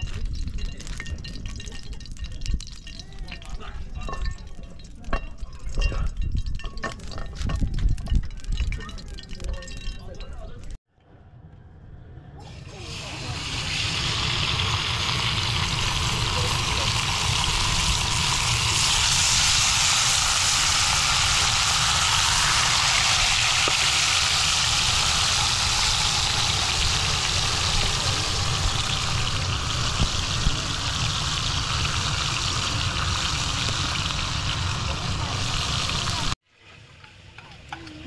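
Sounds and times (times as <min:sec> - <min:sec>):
chicken sizzling in oil: 0:12.5 - 0:36.4.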